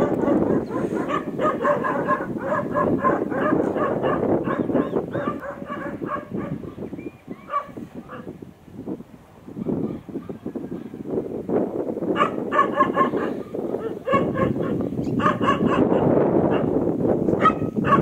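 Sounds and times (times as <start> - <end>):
dogs barking: 0.0 - 8.3, 12.1 - 18.0.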